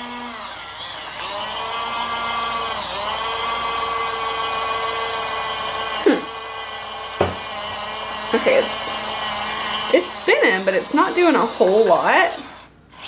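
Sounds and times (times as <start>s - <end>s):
small motor whining: 0.0s - 13.0s
short knock: 7.2s - 7.4s.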